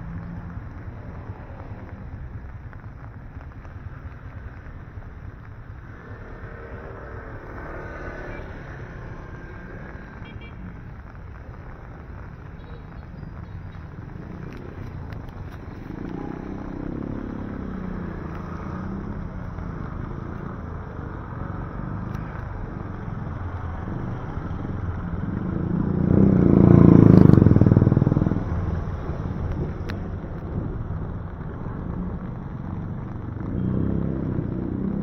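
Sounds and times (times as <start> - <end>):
car passing on wet street: 0.0 - 35.0
motorcycle passing: 5.7 - 10.5, 13.9 - 35.0.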